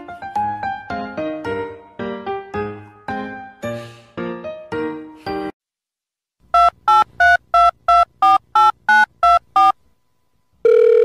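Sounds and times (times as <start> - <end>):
keypad dialing beeps: 6.6 - 9.8.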